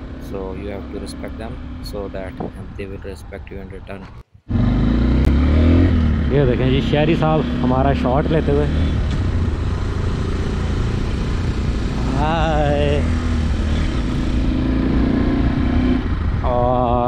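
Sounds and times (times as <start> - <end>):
motorcycle engine hum: 0.0 - 17.0
road noise: 0.0 - 17.0
wind noise: 1.8 - 4.3, 13.0 - 17.0.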